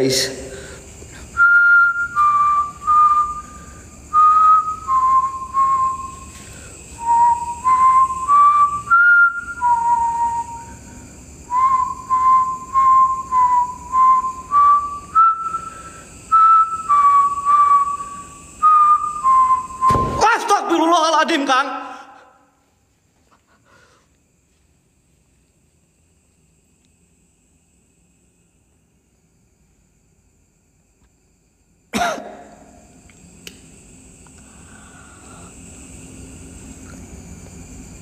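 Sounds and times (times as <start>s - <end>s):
man whistling a tune: 1.4s - 6.4s, 7.0s - 10.8s, 11.5s - 20.2s.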